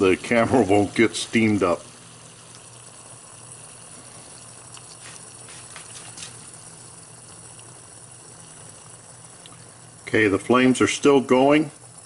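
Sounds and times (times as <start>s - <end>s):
low steady hum: 0.0s - 12.0s
stove hissing: 0.0s - 12.0s
water bubbling at a boil: 0.0s - 12.0s.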